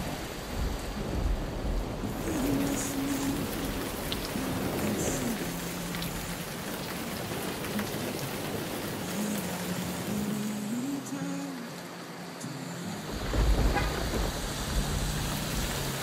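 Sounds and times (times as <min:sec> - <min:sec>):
heavy rain on car roof: 0:00.0 - 0:16.0
deep low rumble: 0:13.2 - 0:16.0.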